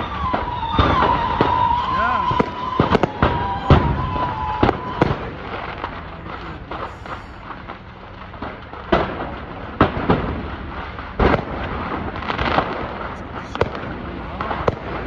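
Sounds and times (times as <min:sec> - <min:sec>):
explosion bangs and pops: 0:00.0 - 0:15.0
rumbling fire: 0:00.0 - 0:15.0.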